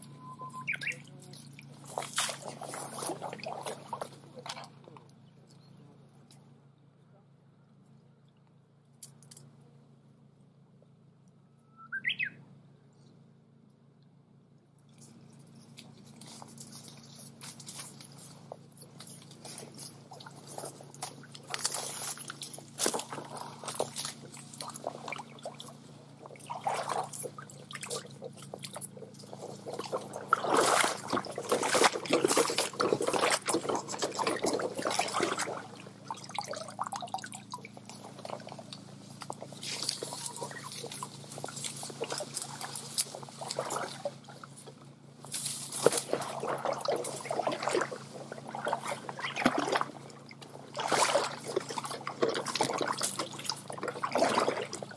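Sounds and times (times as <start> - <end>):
water trickling in a stream: 0.5 - 4.9, 14.8 - 54.9.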